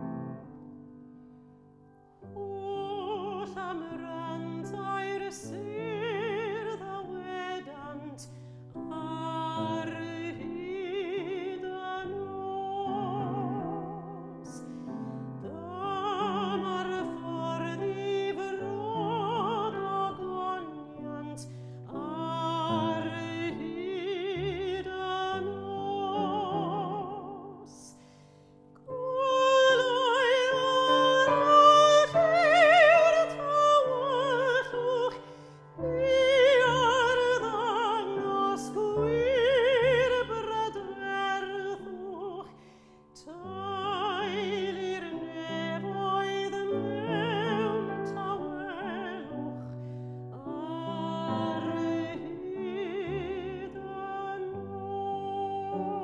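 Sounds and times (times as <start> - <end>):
grand piano: 0.0 - 56.0
woman singing opera: 2.1 - 56.0
singer breathing: 8.3 - 8.8, 14.6 - 15.4, 21.5 - 21.9, 28.0 - 28.8, 42.6 - 43.1, 49.6 - 50.3.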